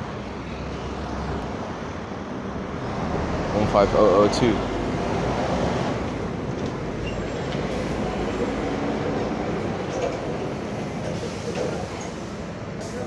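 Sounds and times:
bus diesel engine rumbling: 0.0s - 13.0s.

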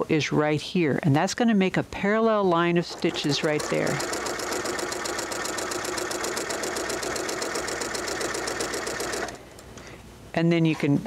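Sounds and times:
sewing machine stitching: 2.8s - 9.4s.

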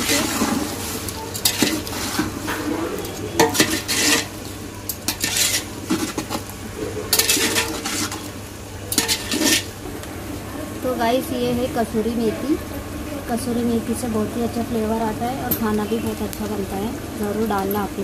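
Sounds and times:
spoon scraping a metal pot: 0.0s - 0.6s, 1.4s - 4.4s, 5.0s - 6.4s, 7.1s - 8.3s, 8.9s - 9.8s
food frying hiss: 0.0s - 18.0s.

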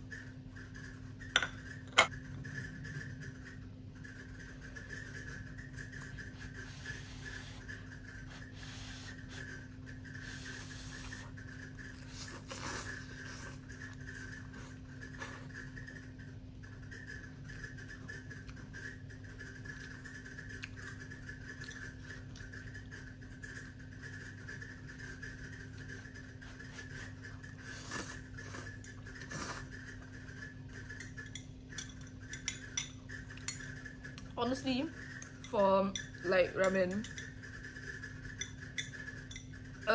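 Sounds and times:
steady low hum: 0.0s - 39.9s
slurping and chewing noodles: 4.0s - 35.5s
slurping noodles: 6.2s - 15.8s, 26.4s - 30.1s.

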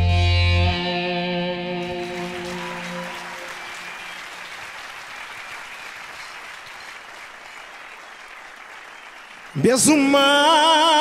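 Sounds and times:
band chord ringing out: 0.0s - 4.0s
audience applauding: 1.8s - 11.0s.

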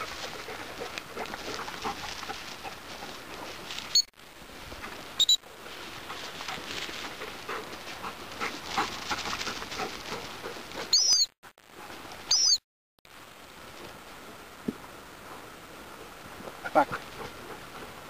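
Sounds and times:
dog whistle pips: 10.9s - 11.3s, 12.3s - 12.6s.

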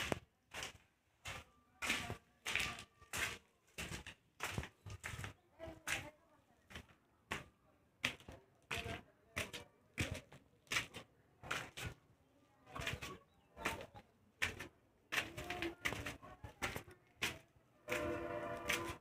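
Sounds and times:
footsteps on concrete stairs: 0.0s - 19.0s.

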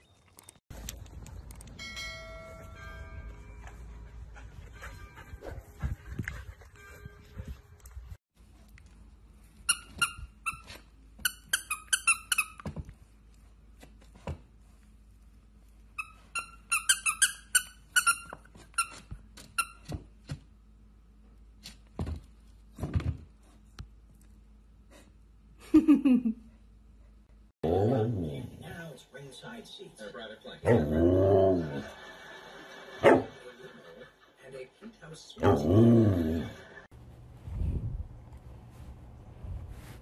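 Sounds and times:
squeaky dog toy squeaking: 9.7s - 12.6s, 16.0s - 19.9s.

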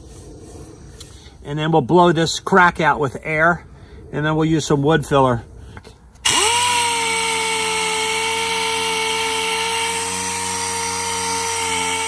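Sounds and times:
air sander whining: 6.2s - 12.0s.

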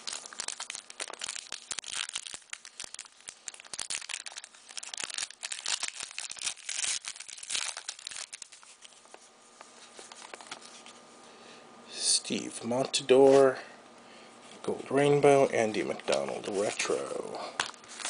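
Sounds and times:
wrapper crinkling and tearing: 0.0s - 9.2s, 9.9s - 11.0s, 15.8s - 18.0s
cards rustling: 0.0s - 11.0s, 15.6s - 18.0s.

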